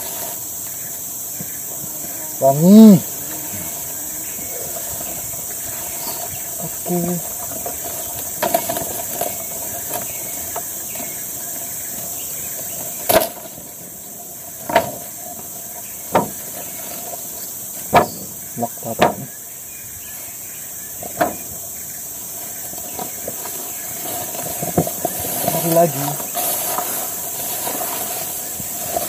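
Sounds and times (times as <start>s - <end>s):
insect chorus: 0.0s - 29.0s.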